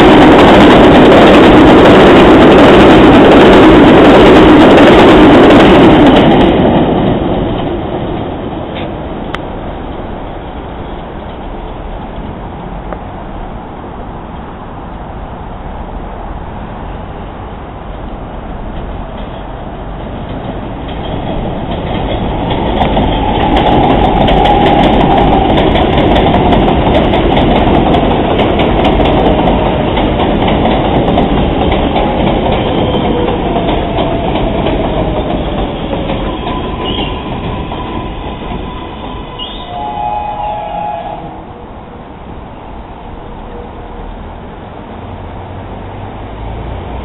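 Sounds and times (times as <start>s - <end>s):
subway train wheels clacking: 0.0s - 47.0s
train braking whine: 35.7s - 41.7s.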